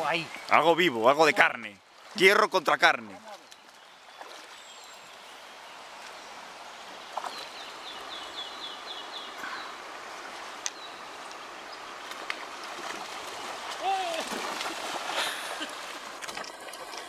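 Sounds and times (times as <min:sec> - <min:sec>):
river water rushing: 0:03.4 - 0:17.0.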